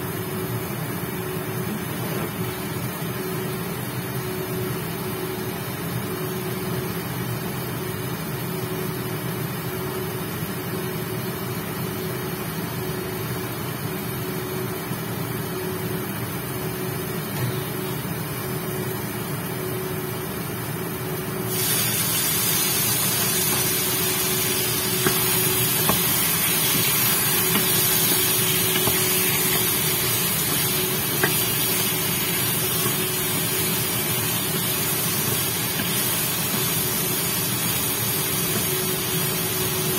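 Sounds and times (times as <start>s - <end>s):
cooling fan hum: 0.0s - 39.9s
chicken sizzling in a wok: 21.3s - 39.9s.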